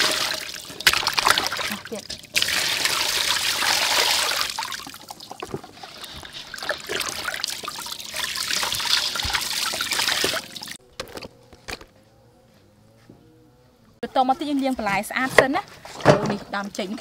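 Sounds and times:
hands splashing water: 0.0s - 10.8s
water pouring into metal basin: 0.0s - 10.8s.

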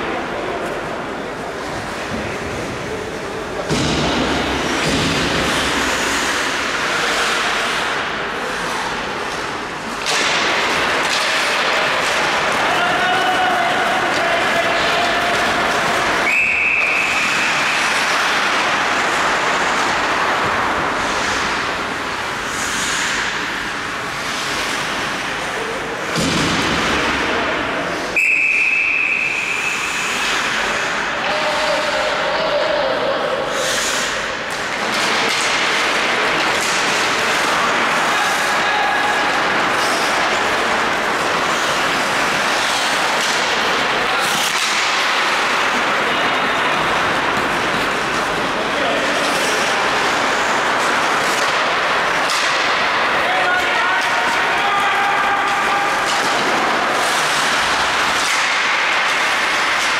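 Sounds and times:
ice hockey play noise: 0.0s - 59.9s
referee's whistle blast: 28.2s - 29.8s.

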